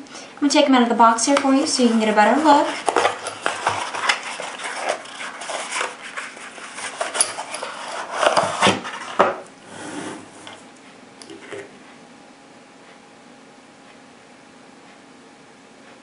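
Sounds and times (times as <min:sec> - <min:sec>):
cardboard box being opened: 0:02.4 - 0:09.2.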